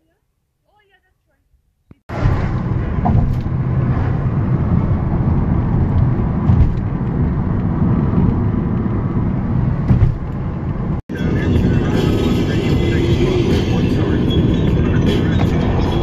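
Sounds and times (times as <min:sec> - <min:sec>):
car bumps: 0:02.1 - 0:03.8, 0:06.3 - 0:07.0, 0:09.8 - 0:10.5
tyre and wind noise in car: 0:02.1 - 0:11.9.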